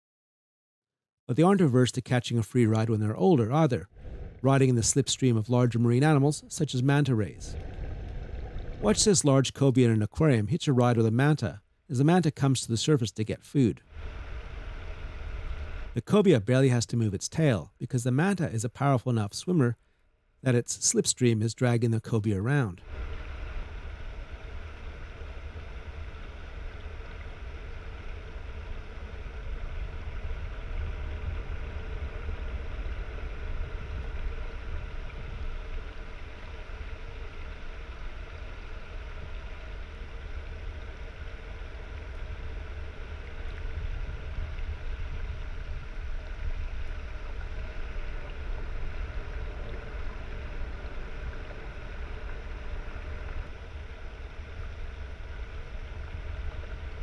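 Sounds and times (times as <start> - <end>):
faint steady hum: 1.3 - 57.0
low underwater rumble: 3.8 - 9.2, 13.8 - 16.0, 22.8 - 57.0.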